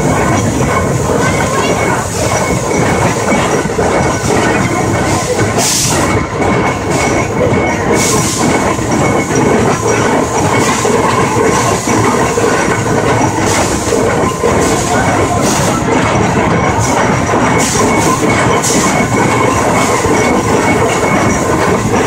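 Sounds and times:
locomotive running gear clatter: 0.0s - 22.0s
steam hisses: 0.8s - 16.0s.

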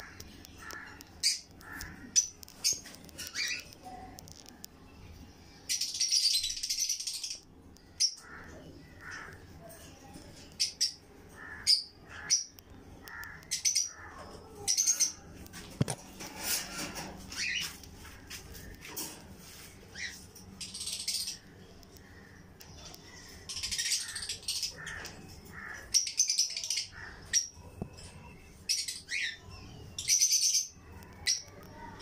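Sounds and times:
parakeet screeching and squawking: 23.4s - 27.5s.

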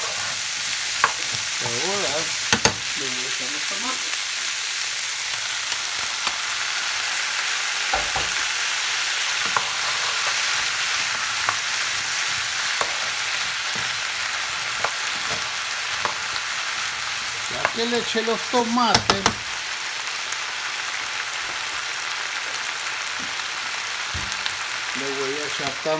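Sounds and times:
vegetables sizzling in a frying pan: 0.0s - 25.9s
utensils scraping a pan: 9.4s - 16.4s.

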